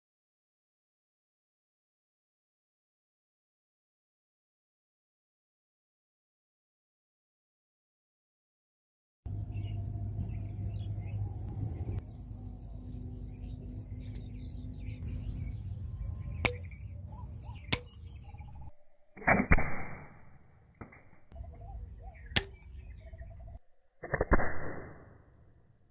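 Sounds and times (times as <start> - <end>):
slingshot gun shot bursts: 19.2 - 21.0.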